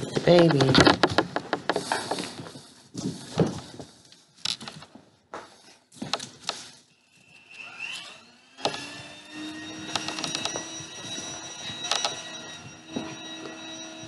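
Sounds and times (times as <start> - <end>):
short high whine: 6.8 - 14.0.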